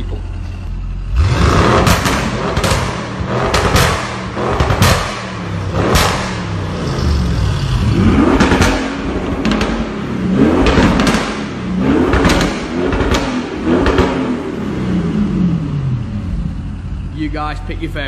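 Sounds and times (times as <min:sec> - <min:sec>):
car engine revving: 0:00.0 - 0:18.0
exhaust cracks and pops: 0:01.8 - 0:06.4, 0:08.4 - 0:09.9, 0:10.5 - 0:11.5.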